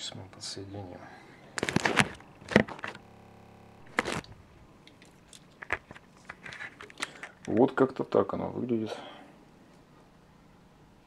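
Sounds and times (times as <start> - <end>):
plastic packaging crinkling: 1.6 - 3.0, 3.8 - 7.6.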